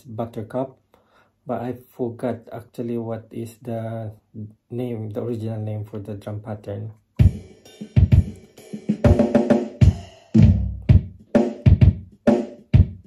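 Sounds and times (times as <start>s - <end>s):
drum machine beat: 7.2s - 13.0s.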